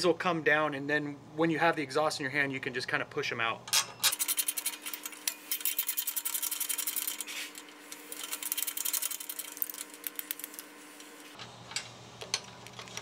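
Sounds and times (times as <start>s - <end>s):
hand ratchet clicking: 4.1s - 7.3s, 8.1s - 10.5s.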